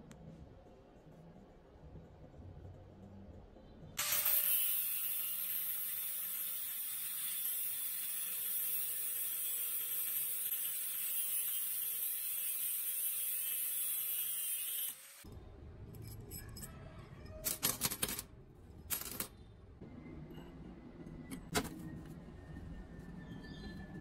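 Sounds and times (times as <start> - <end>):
angle grinder cutting steel: 4.0 - 15.3.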